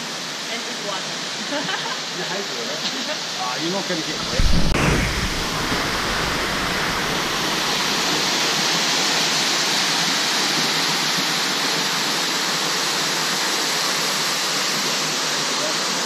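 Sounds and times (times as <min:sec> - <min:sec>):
waterfall rushing: 0:03.3 - 0:16.0.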